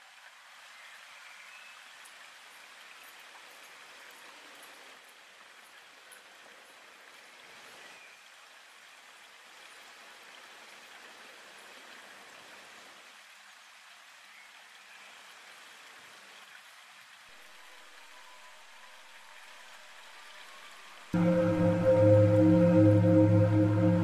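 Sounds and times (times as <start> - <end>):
faint steady hiss: 0.0 - 24.0.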